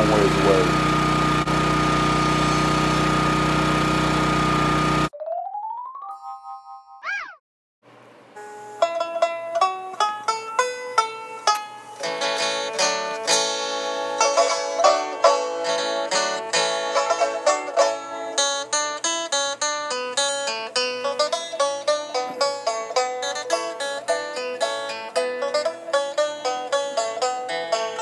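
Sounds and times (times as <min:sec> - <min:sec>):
plucked string music: 0:08.8 - 0:28.0.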